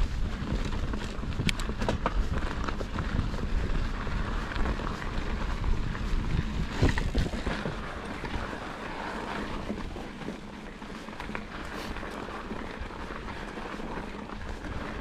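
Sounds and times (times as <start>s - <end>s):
wind on microphone: 0.0s - 10.4s
bike rattling: 0.0s - 15.0s
tyres crunching on gravel: 0.0s - 15.0s.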